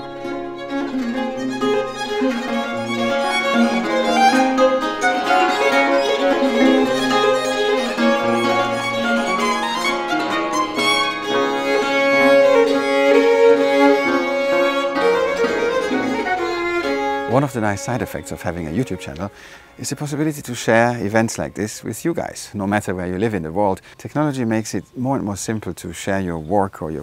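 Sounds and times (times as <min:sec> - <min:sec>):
violin melody: 0:00.0 - 0:23.5
lute playing low bass notes: 0:00.0 - 0:23.6.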